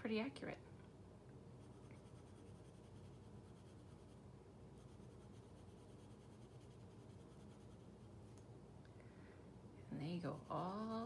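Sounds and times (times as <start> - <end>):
pencil scratching on paper: 1.6 - 4.2, 4.8 - 7.9, 10.0 - 11.0.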